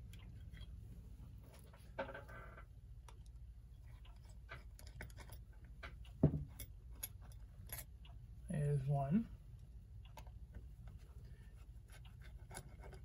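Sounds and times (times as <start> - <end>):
screwdriver and metal parts clicking: 3.9 - 5.5
thump: 6.2 - 6.4.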